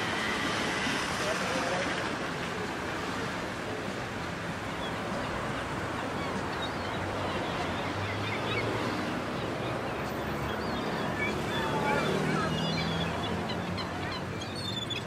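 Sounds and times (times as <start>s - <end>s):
outdoor ambient noise: 0.0s - 15.0s.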